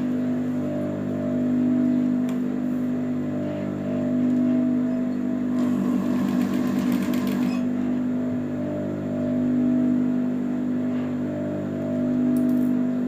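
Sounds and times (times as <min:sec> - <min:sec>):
sewing machine motor humming: 0:05.5 - 0:07.7
sewing machine stitching: 0:05.6 - 0:07.7.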